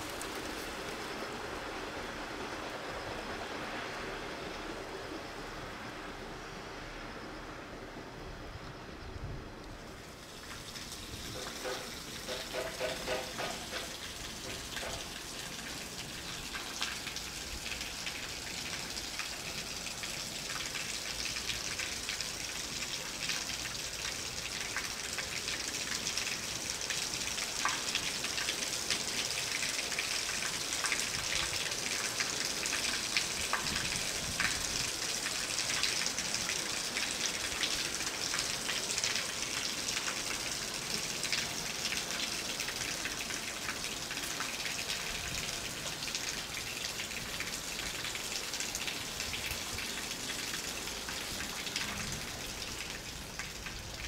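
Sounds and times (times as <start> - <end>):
train wheels hissing on rails: 10.0 - 16.8.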